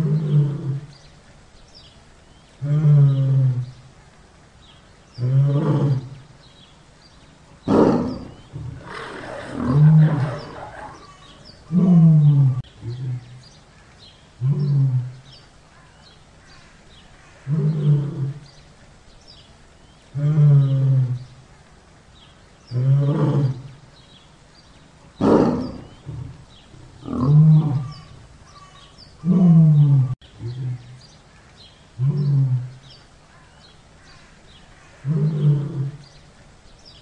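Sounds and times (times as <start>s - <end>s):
tiger roaring and growling: 0.0s - 0.9s, 2.6s - 3.8s, 5.2s - 6.2s, 7.6s - 13.6s, 14.4s - 15.3s, 17.4s - 18.5s, 20.1s - 21.3s, 25.2s - 28.3s, 29.2s - 31.0s, 32.0s - 33.0s, 35.0s - 36.2s.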